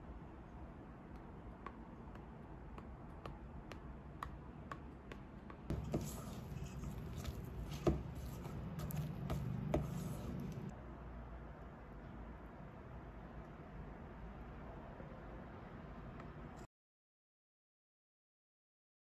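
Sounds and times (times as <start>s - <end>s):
spatula scraping a steel bowl: 5.7s - 10.7s.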